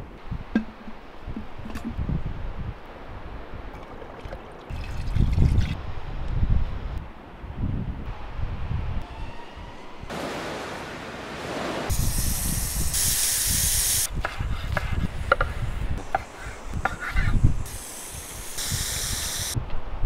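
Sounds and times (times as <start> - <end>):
loud hiss bursts: 11.9 - 14.1, 17.4 - 19.6.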